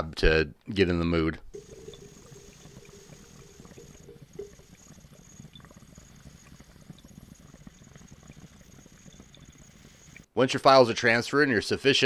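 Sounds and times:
water bubbling in glass pipe: 1.5s - 10.3s.

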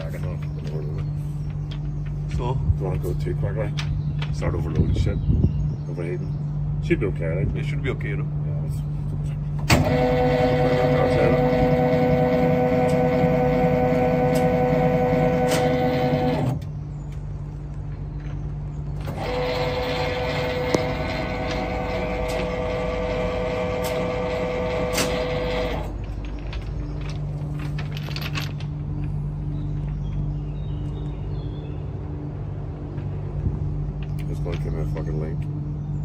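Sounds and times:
low steady hum: 0.0s - 36.0s
motor drive whining: 9.6s - 17.9s, 18.8s - 31.3s.

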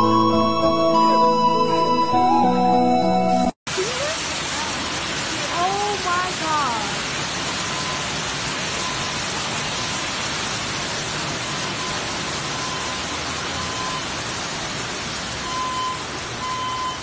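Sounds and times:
water gushing and pouring: 3.7s - 16.4s.

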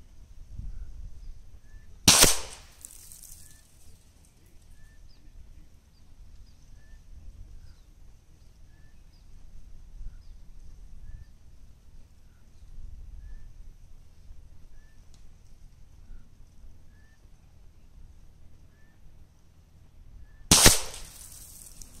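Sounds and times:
air rifle shot: 2.1s - 3.4s, 20.5s - 22.0s
faint chirp: 3.3s - 9.4s.

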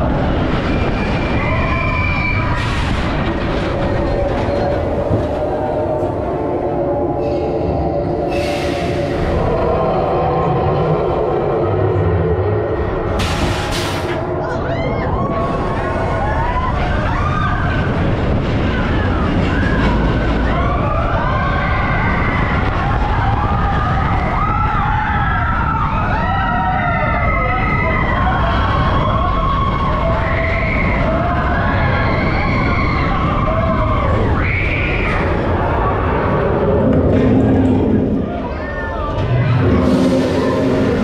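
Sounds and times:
riders screaming and whooping: 0.0s - 12.9s, 14.4s - 41.0s
roller coaster train rumbling: 0.0s - 41.0s
rushing air: 39.4s - 41.0s.

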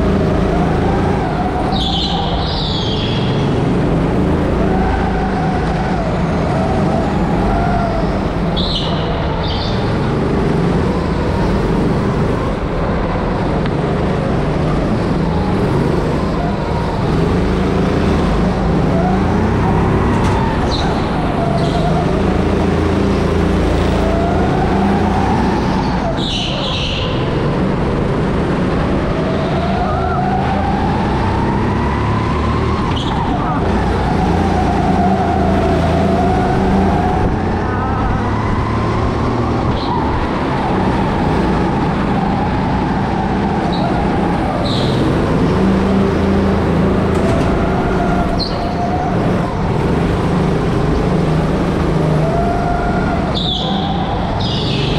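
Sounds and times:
go-kart motor: 0.0s - 54.9s
tyre squeals: 18.7s - 22.7s, 23.8s - 27.3s, 43.6s - 45.6s, 46.8s - 49.6s, 52.3s - 54.9s.

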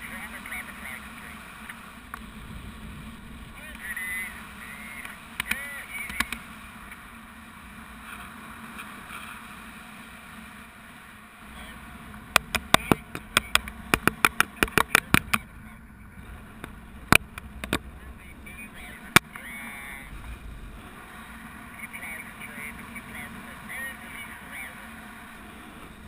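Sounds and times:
sharp clicks and knocks: 5.4s - 6.4s, 12.3s - 15.5s, 16.6s - 17.9s
wind rushing over camera: 11.4s - 26.0s.

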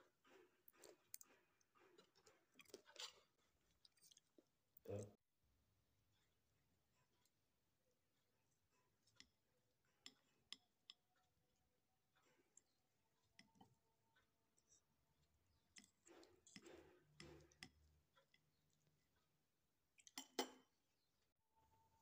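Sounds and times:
knife and fork scraping a glass plate: 0.3s - 3.4s, 15.8s - 17.8s
cutlery clinking: 20.1s - 20.8s.

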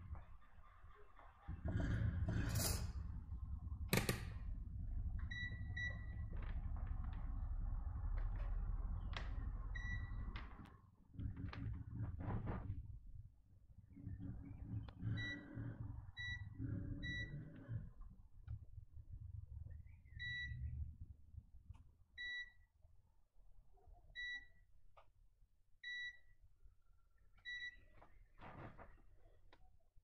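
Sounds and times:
low rumble: 0.0s - 22.6s.

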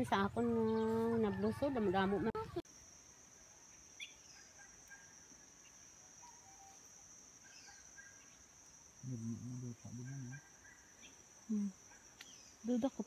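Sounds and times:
crickets droning: 0.0s - 13.0s
person's low voice: 9.0s - 10.4s.

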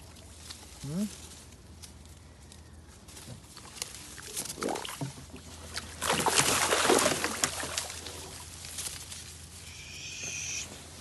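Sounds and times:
fish splashing in water: 4.1s - 8.5s.

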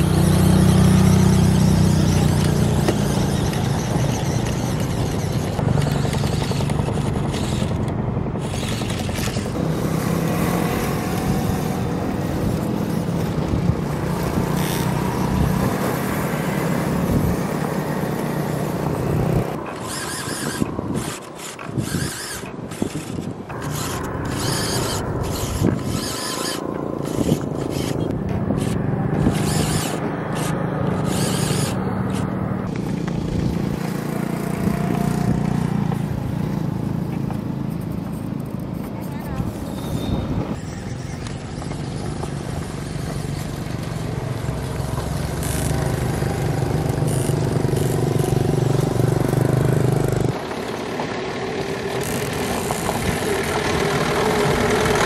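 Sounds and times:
small electric motor whining: 0.0s - 33.5s, 44.3s - 50.6s, 51.6s - 55.0s.

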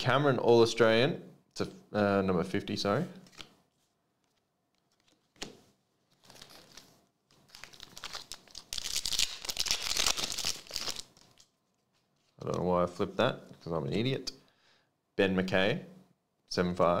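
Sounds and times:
foil wrapper crinkling and tearing: 6.1s - 12.3s.

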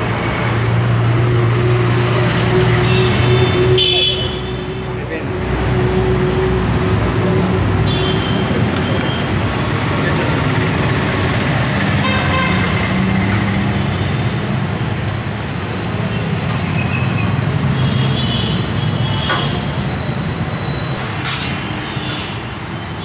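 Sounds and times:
road traffic: 0.0s - 23.0s
vehicle horns honking: 2.7s - 4.8s, 7.8s - 9.3s, 12.0s - 12.8s, 17.7s - 19.7s.

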